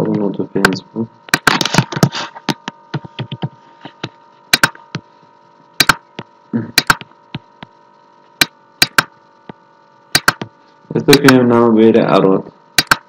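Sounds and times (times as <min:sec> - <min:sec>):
faint electrical hum: 0:00.0 - 0:13.0
keyboard typing: 0:03.0 - 0:03.5, 0:06.8 - 0:07.1, 0:10.2 - 0:10.5, 0:12.8 - 0:13.0
mouse clicks: 0:12.8 - 0:13.0.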